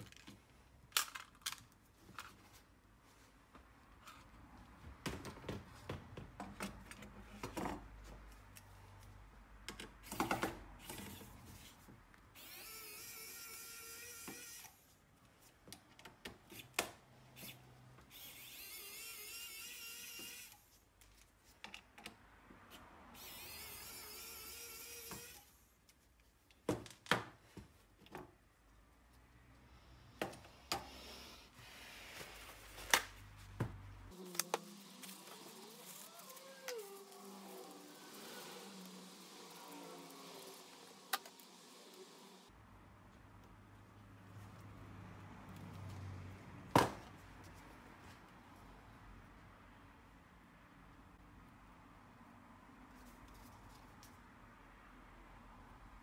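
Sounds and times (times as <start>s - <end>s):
parts and tools clicking: 0.0s - 2.4s.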